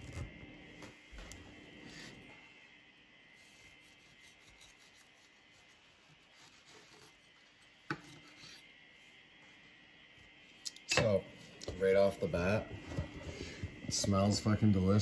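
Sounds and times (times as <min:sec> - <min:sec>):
knife sawing through bread: 0:03.7 - 0:07.3.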